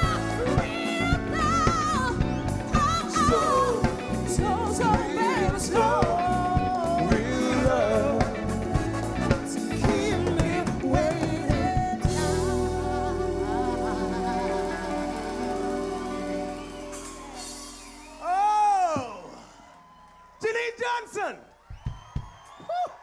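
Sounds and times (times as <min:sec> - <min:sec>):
male and female vocals: 0:00.0 - 0:17.2
live soul band playing: 0:00.0 - 0:18.6.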